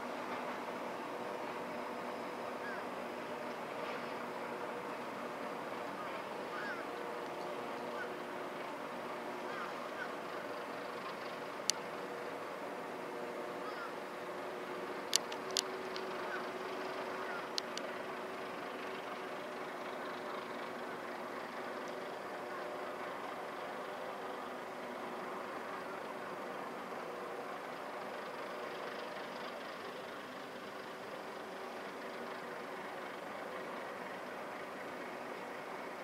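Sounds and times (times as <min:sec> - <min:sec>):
engine humming at idle: 0:00.0 - 0:36.0
outdoor noise: 0:00.0 - 0:36.0.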